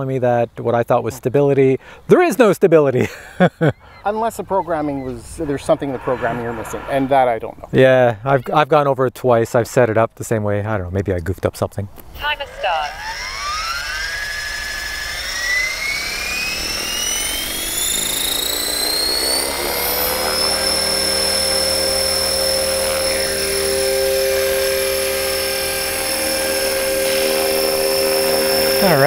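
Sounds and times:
rc helicopter motor whine: 0:12.2 - 0:29.0.

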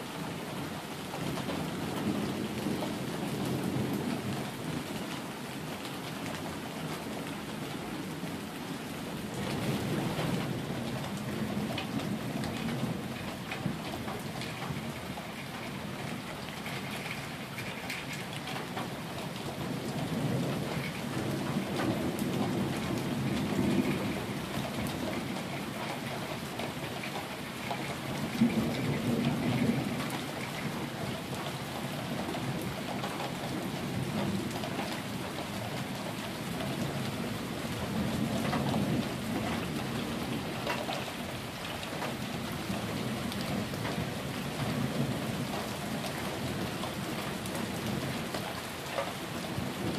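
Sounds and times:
steady rain on pavement: 0:00.0 - 0:49.9
low thunder rumbling: 0:19.5 - 0:27.0, 0:27.6 - 0:31.4.

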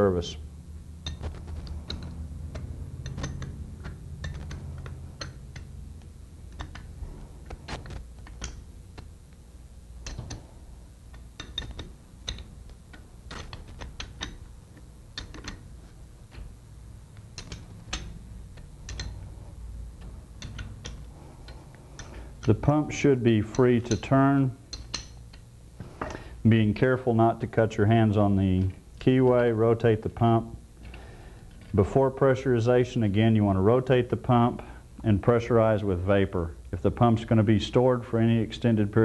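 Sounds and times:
steady low hum: 0:00.0 - 0:39.0
wrench metallic clicks: 0:01.0 - 0:07.0, 0:07.7 - 0:09.1, 0:10.0 - 0:10.5, 0:11.1 - 0:16.6, 0:17.2 - 0:19.3, 0:20.0 - 0:26.2.

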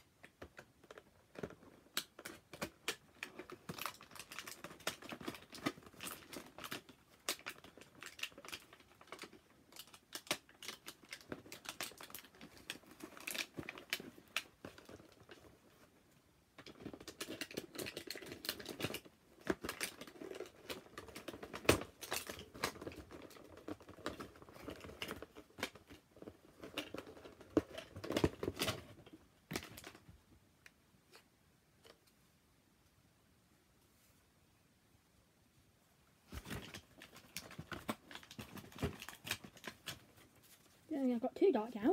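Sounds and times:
packaging rustling and tearing: 0:00.8 - 0:15.9, 0:16.6 - 0:30.0, 0:36.3 - 0:40.9.

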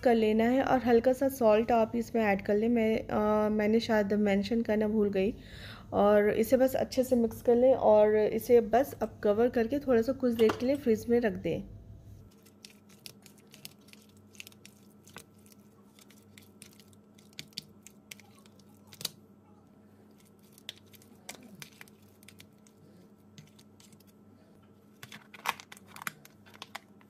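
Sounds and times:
faint steady hum: 0:00.0 - 0:27.0
fork stirring thick food: 0:12.3 - 0:19.2, 0:20.1 - 0:24.2.

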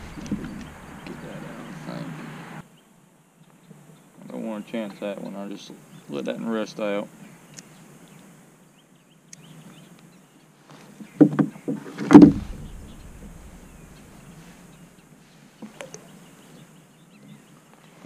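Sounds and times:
deep thump on kayak hull: 0:00.0 - 0:01.2, 0:11.2 - 0:14.8
faint small clicks: 0:07.5 - 0:07.7, 0:09.3 - 0:10.1
knocks on plastic kayak hull: 0:11.2 - 0:12.8.

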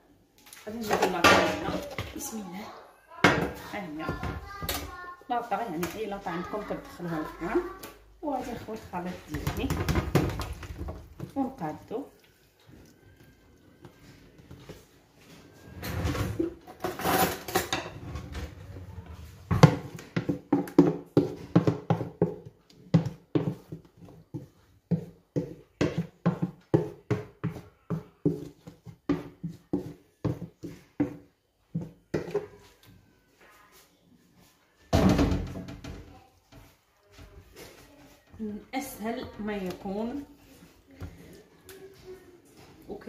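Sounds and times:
wet knocks and scrapes in bowl: 0:05.4 - 0:17.8, 0:18.9 - 0:32.9.

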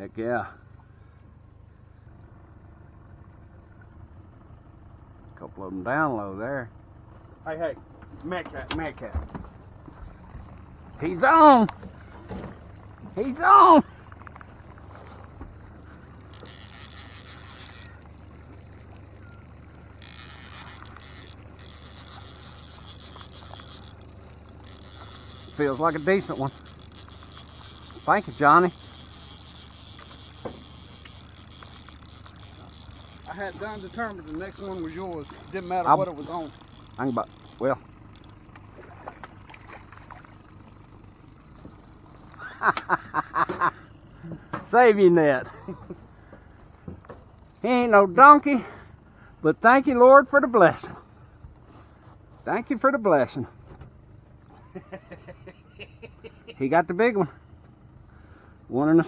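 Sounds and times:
low boat hum: 0:00.0 - 0:59.0
fishing reel whirring: 0:09.8 - 0:46.3
fish splashing in water: 0:36.2 - 0:42.5.

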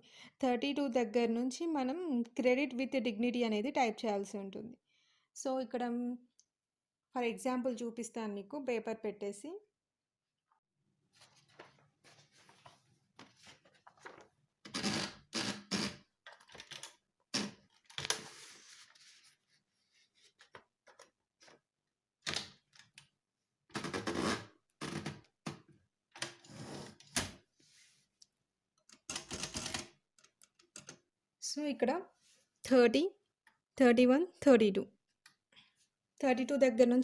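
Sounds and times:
typewriter clicks and clunks: 0:29.0 - 0:29.9.

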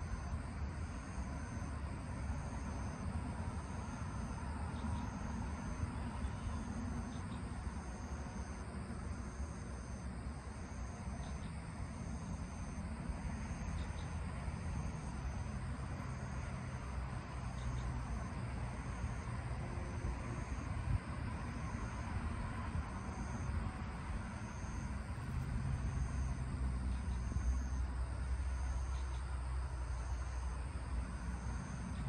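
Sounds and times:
high-pitched insect call: 0:10.7 - 0:12.8, 0:17.3 - 0:18.3, 0:24.4 - 0:30.4
steady low rumble: 0:16.7 - 0:32.0.

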